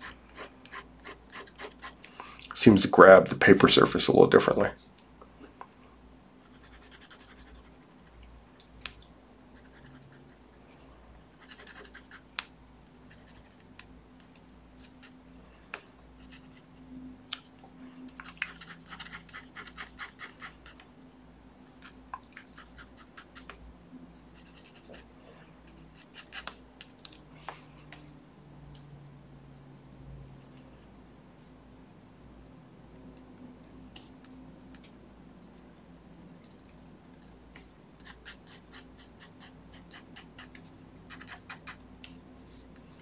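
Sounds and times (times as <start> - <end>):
marker pen scratching on paper: 0.0 - 2.0, 6.4 - 8.3, 9.6 - 10.5, 11.3 - 12.4, 13.0 - 13.7, 16.2 - 16.8, 18.2 - 20.9, 21.8 - 23.6, 24.3 - 25.1, 25.7 - 26.7, 38.0 - 41.9.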